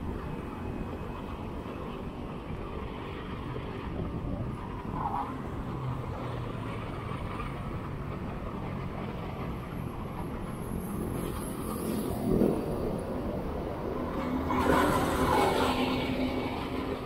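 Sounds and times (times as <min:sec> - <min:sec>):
wind noise on microphone: 0:00.0 - 0:17.0.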